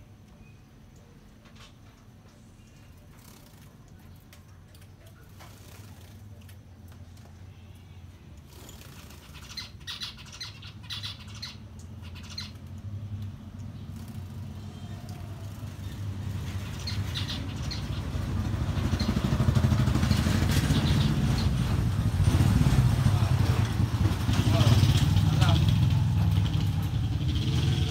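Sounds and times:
finches chirping: 8.6 - 12.7, 15.8 - 19.3, 20.0 - 21.5
vehicle engine rumble: 11.6 - 27.9.

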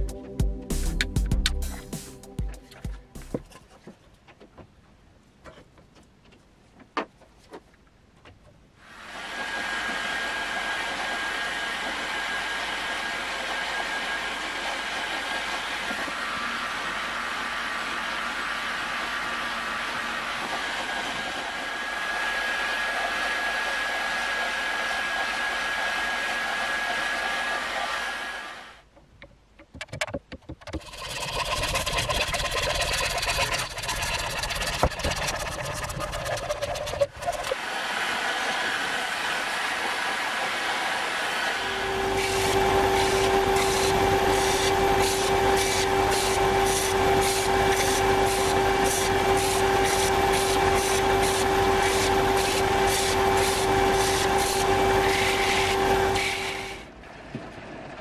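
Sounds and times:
hot air gun blowing: 30.8 - 56.9.

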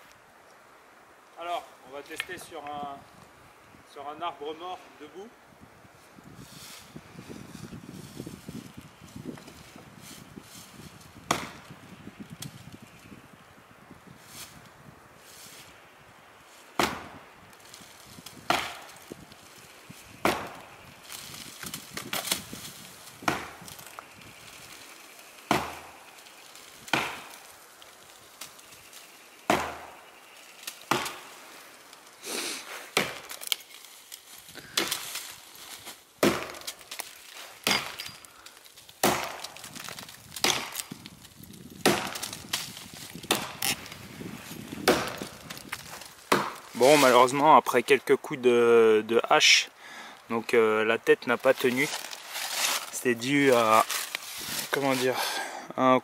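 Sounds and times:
axe chopping dry wood: 11.2 - 11.7, 16.8 - 17.2, 18.2 - 19.0, 20.2 - 20.7, 21.6 - 22.5, 23.2 - 23.7, 25.5 - 26.0, 26.8 - 27.4, 29.5 - 30.0, 30.9 - 31.3, 32.9 - 33.6, 34.6 - 35.2, 36.2 - 37.0, 37.6 - 38.2, 39.0 - 41.0, 41.7 - 43.8, 44.8 - 46.8.

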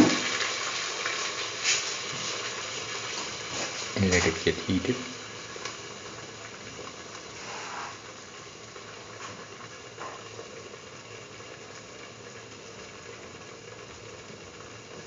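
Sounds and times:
paste sizzling in hot oil: 0.0 - 10.8.

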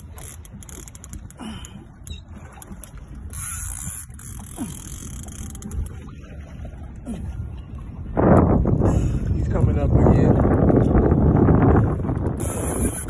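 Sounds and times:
fishing reel creaks and clicks: 0.0 - 1.4, 3.3 - 5.9, 12.3 - 13.0
wind buffeting microphone: 0.0 - 13.0.

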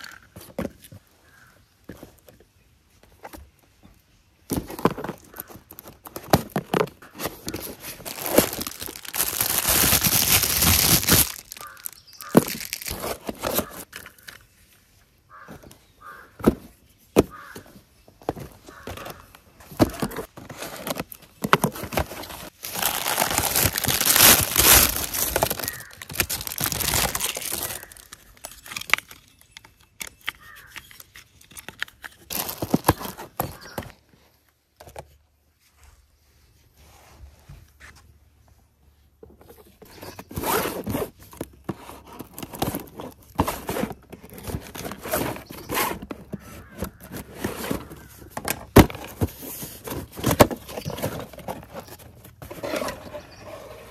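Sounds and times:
cardboard tearing and scraping: 4.5 - 13.9, 19.8 - 29.0, 32.3 - 33.9, 40.0 - 53.9.

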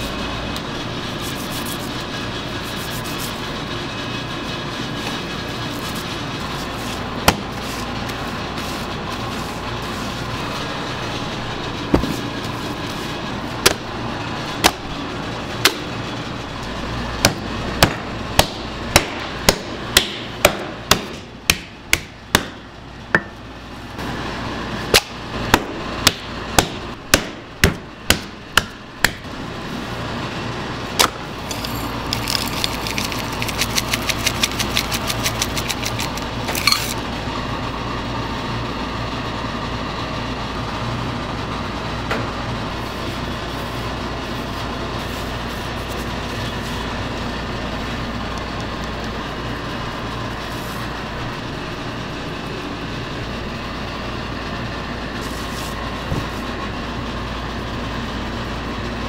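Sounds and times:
steady low hum: 0.0 - 59.0
fast rattling ticks: 31.6 - 36.3.

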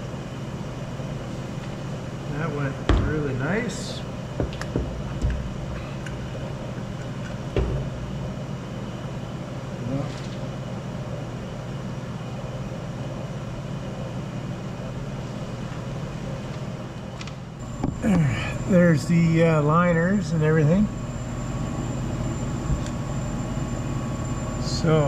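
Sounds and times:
steady droning hum: 0.0 - 25.0
metal clunks and knocks: 2.9 - 3.4, 4.4 - 6.3, 7.5 - 8.0.

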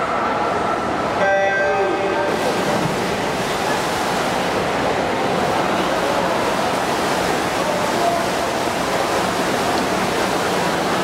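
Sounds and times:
water splashing from swimmers: 2.2 - 11.0.

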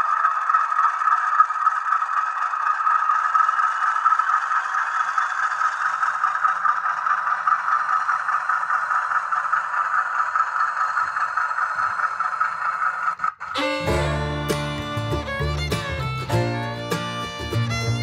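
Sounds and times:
model train wheels rattling on rails: 0.0 - 13.6
model locomotive motor and gears: 0.0 - 16.2.

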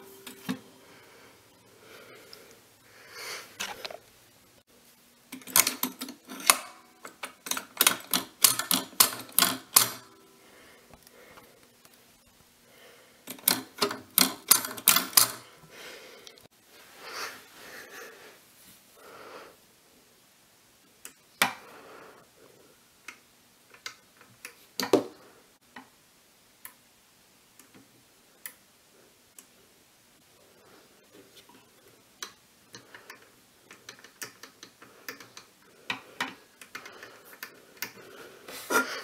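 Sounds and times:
close breathing: 0.7 - 4.0, 10.3 - 11.8, 12.6 - 13.3, 15.4 - 19.6, 21.6 - 22.8, 34.7 - 39.0
person sniffing: 1.8 - 4.0, 36.8 - 39.0
record changer mechanism clicking: 13.3 - 15.4.

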